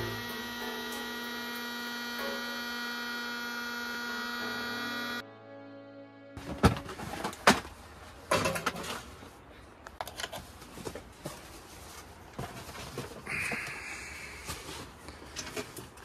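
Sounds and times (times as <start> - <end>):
plastic fans clicking and rattling: 6.4 - 9.2, 14.4 - 16.0.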